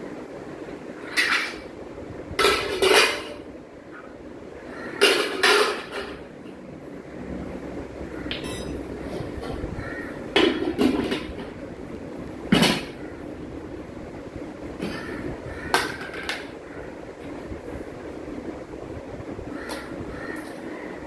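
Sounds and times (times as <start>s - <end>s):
steel pots clattering: 1.0s - 1.7s, 2.4s - 3.5s, 4.8s - 6.3s, 10.3s - 11.6s, 14.8s - 16.6s.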